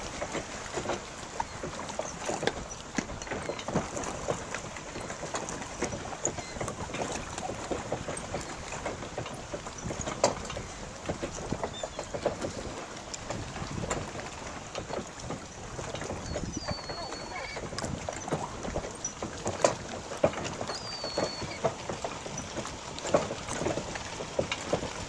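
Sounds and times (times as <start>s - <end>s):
water lapping and splashing: 0.0s - 25.0s.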